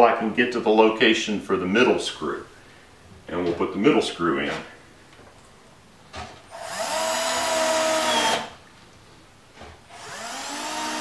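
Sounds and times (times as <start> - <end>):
cordless drill motor whining: 6.5 - 8.5, 9.9 - 11.0.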